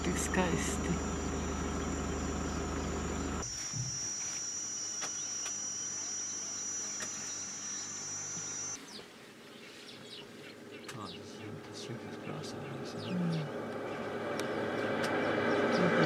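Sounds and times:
high-pitched insect trill: 0:00.0 - 0:08.8
low steady hum: 0:00.0 - 0:08.8.

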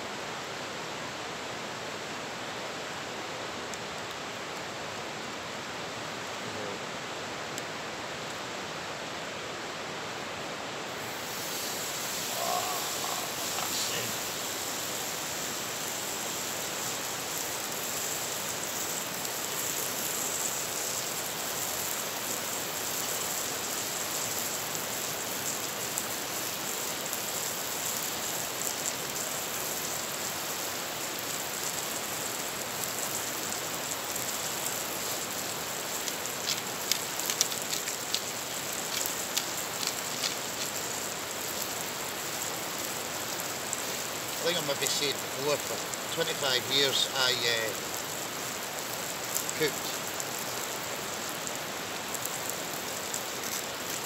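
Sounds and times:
river rapids rushing: 0:10.8 - 0:22.8
steak sizzling in skillet: 0:10.9 - 0:54.0.

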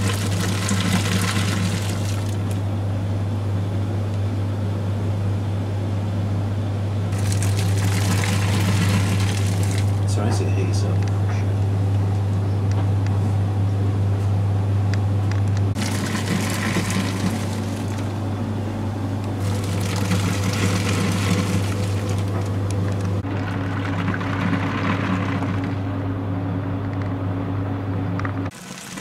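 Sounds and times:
washing machine churning water: 0:00.0 - 0:03.0, 0:07.1 - 0:11.0, 0:15.7 - 0:26.2, 0:28.2 - 0:29.0
low electrical hum: 0:00.0 - 0:29.0.

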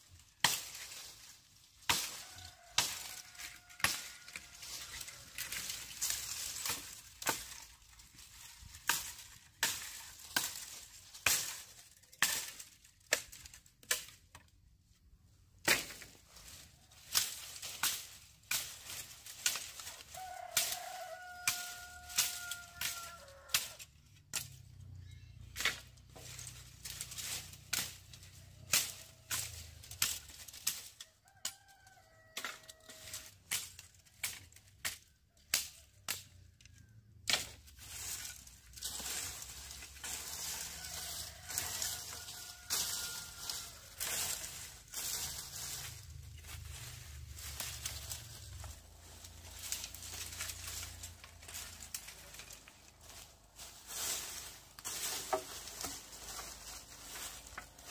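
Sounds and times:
blade chopping sugarcane: 0:00.4 - 0:00.9, 0:01.8 - 0:04.5, 0:08.8 - 0:14.2, 0:15.6 - 0:16.2, 0:17.0 - 0:24.6, 0:28.7 - 0:31.6, 0:37.2 - 0:53.0
rooster crowing: 0:02.0 - 0:05.6, 0:19.8 - 0:23.8, 0:31.0 - 0:33.2, 0:40.1 - 0:46.0.

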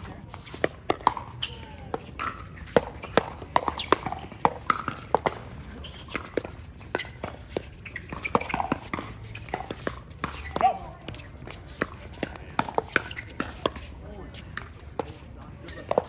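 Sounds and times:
paddles hitting plastic ball: 0:00.0 - 0:16.0.

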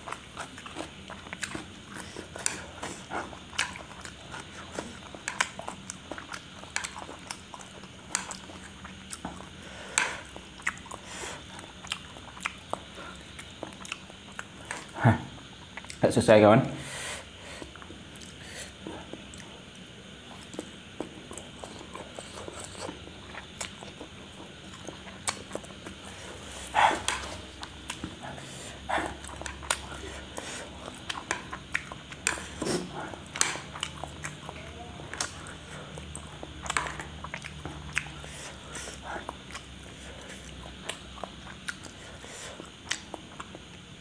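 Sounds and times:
wet chewing and lip smacks: 0:00.0 - 0:09.6, 0:10.3 - 0:15.0, 0:15.6 - 0:16.0, 0:28.9 - 0:42.0, 0:42.6 - 0:43.9.

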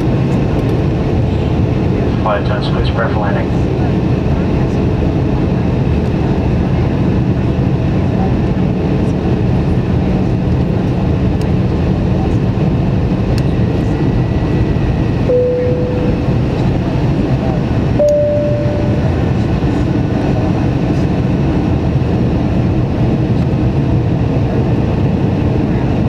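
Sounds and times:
airplane cabin engine hum and airflow: 0:00.0 - 0:26.0
brief steady tone: 0:15.3 - 0:16.4, 0:18.0 - 0:19.4.

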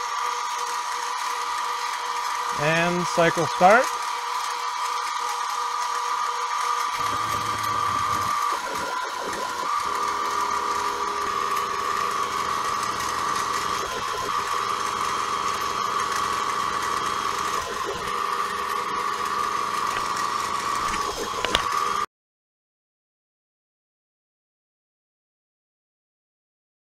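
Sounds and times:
mill spindle whine: 0:00.0 - 0:22.1
stepper motors moving table: 0:06.9 - 0:22.0.

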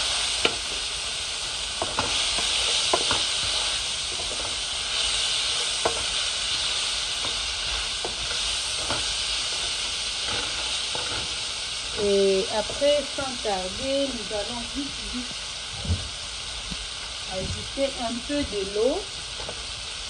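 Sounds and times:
vegetables sizzling in hot oil: 0:00.0 - 0:20.0
wooden spatula scraping a pan: 0:01.8 - 0:13.4.

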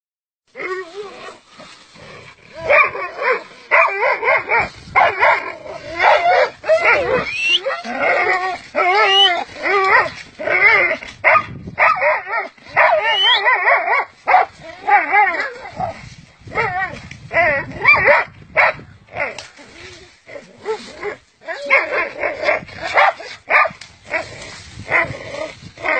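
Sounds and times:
dogs barking: 0:02.6 - 0:07.6, 0:11.2 - 0:14.5, 0:17.8 - 0:18.8, 0:22.9 - 0:23.8
dogs yelping: 0:02.6 - 0:18.7.

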